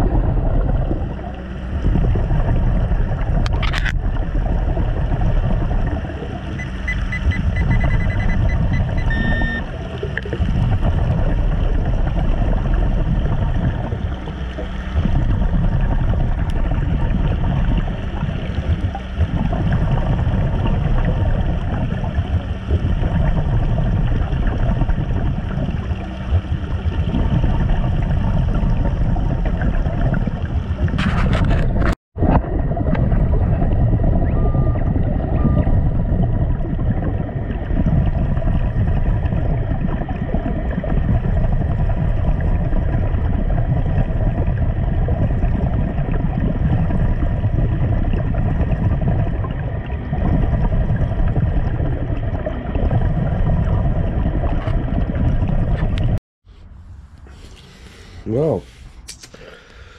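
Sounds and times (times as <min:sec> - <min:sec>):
faint high beeps: 0:06.6 - 0:09.7
diver breathing through regulator: 0:56.4 - 0:59.9.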